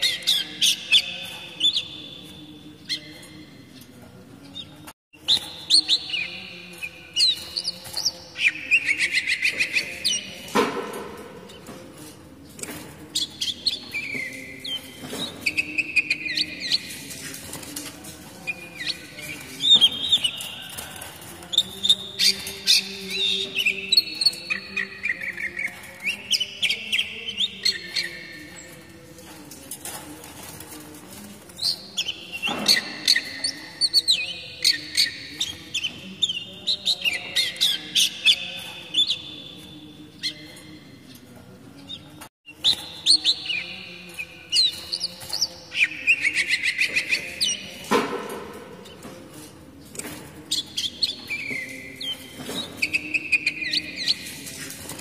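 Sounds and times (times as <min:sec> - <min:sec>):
songbird chirping and whistling: 0:04.6 - 0:10.5, 0:13.2 - 0:17.6, 0:18.4 - 0:28.7, 0:42.5 - 0:47.8, 0:50.5 - 0:54.6.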